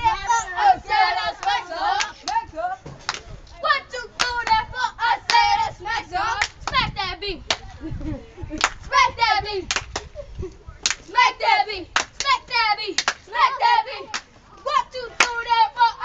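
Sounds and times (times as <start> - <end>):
children chanting a rhyme: 0.0 - 2.4, 3.6 - 7.4, 11.1 - 16.0
hand claps: 13.0 - 13.2.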